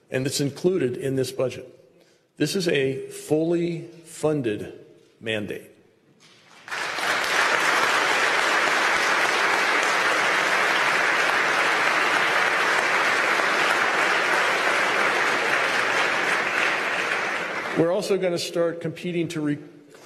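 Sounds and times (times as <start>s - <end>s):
audience applause: 6.5s - 18.0s.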